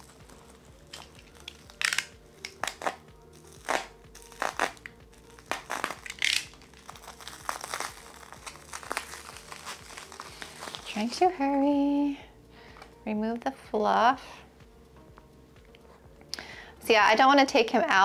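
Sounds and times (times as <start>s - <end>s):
plastic wrap crinkling: 0.0s - 11.3s.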